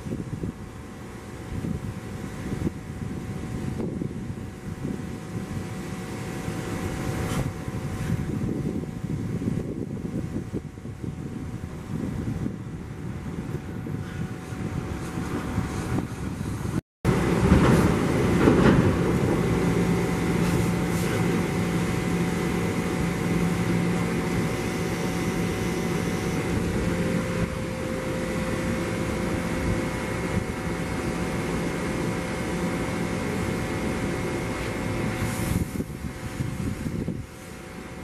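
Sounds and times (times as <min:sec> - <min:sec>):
truck engine running: 0:00.0 - 0:38.0.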